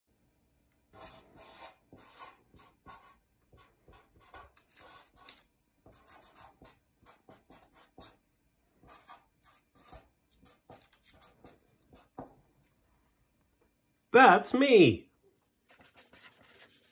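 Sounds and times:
marker scratching on paper: 0.9 - 8.2, 8.8 - 12.4, 15.6 - 16.9.

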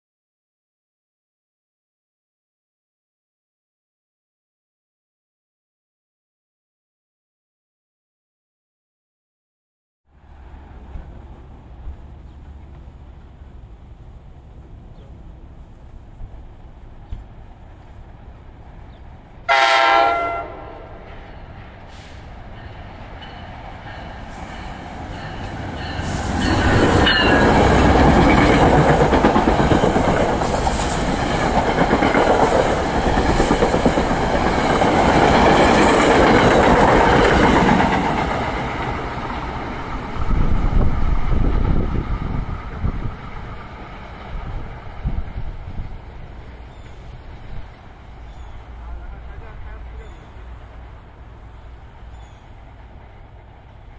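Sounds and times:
train passing loudly: 10.1 - 53.9
train horn blast: 19.5 - 21.2.

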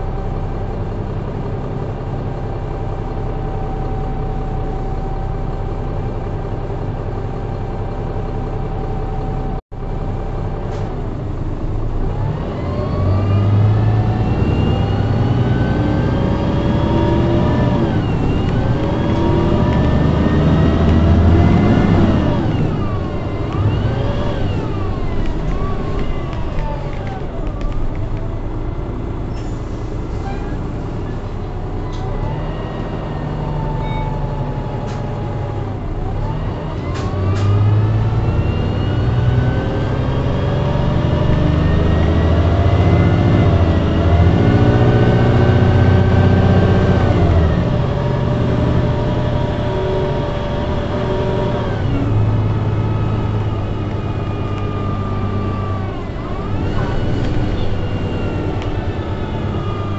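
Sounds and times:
bus drivetrain whine: 0.0 - 59.9.

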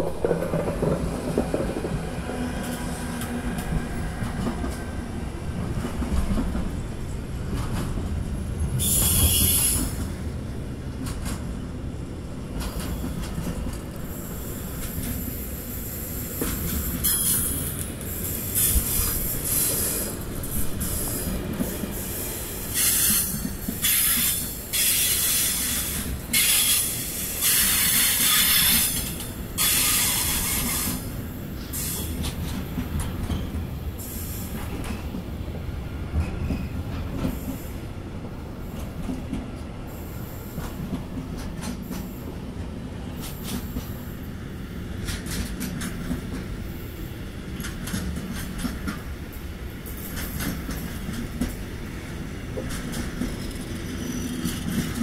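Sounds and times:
wheels clicking over rail joints: 0.0 - 4.8, 47.5 - 49.1
freight train rumbling past: 0.0 - 55.0.

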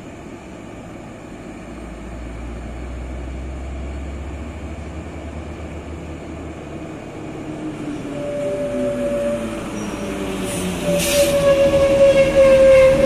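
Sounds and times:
diesel truck engines rumbling: 0.0 - 13.0
steady high tone: 7.0 - 13.0.

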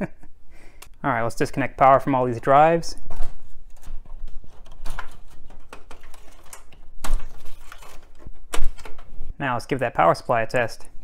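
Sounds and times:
plastic connectors clicking and rattling: 3.1 - 9.1.

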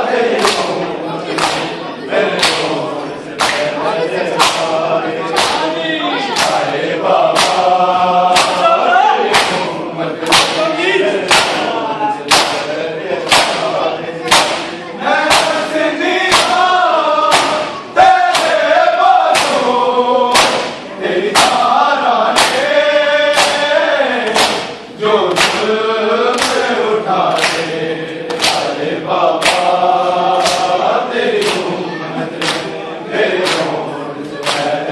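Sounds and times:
men chanting together: 0.0 - 34.9
hands slapping chest: 0.4 - 0.7, 1.3 - 1.7, 2.4 - 2.7, 3.4 - 3.7, 4.4 - 4.7, 5.4 - 5.6, 6.4 - 6.6, 7.3 - 7.7, 8.3 - 8.7, 9.3 - 9.6, 10.2 - 10.6, 11.3 - 11.7, 12.3 - 13.7, 14.3 - 15.6, 16.3 - 16.7, 17.3 - 17.7, 18.3 - 19.7, 20.3 - 21.7, 22.3 - 22.7, 23.3 - 25.7, 26.3 - 26.7, 27.3 - 27.7, 28.3 - 28.8, 29.4 - 29.8, 30.4 - 30.8, 31.4 - 31.7, 32.4 - 32.8, 33.4 - 33.8, 34.4 - 34.8.

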